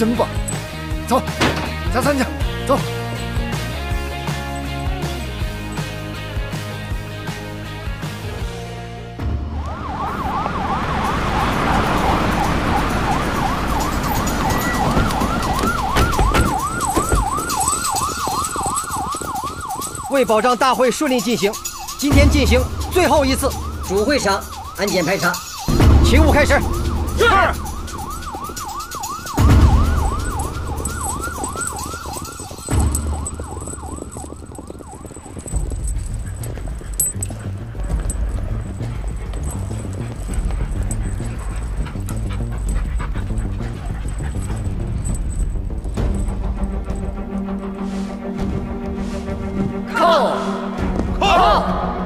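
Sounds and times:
police siren yelping: 0:09.5 - 0:37.2.

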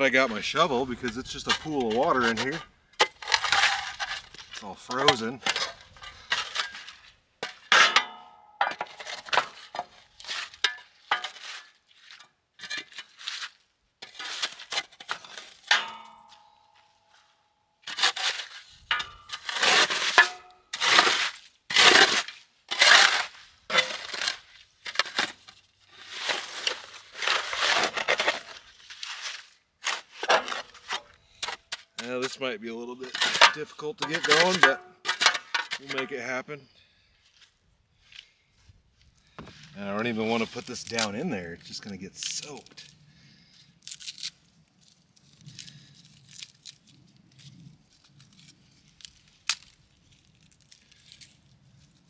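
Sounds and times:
shovel scraping ice: 0:00.2 - 0:08.0, 0:08.7 - 0:15.7, 0:17.8 - 0:32.4, 0:33.0 - 0:36.1, 0:40.1 - 0:42.9
shovel chipping ice: 0:00.3 - 0:08.0, 0:12.6 - 0:15.7, 0:17.8 - 0:32.4, 0:33.0 - 0:36.1, 0:40.1 - 0:42.9.

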